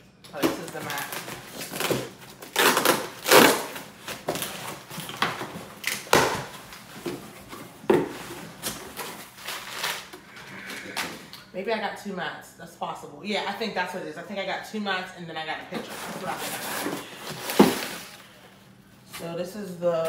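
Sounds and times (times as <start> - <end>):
crumpled paper crinkling: 8.2 - 10.2.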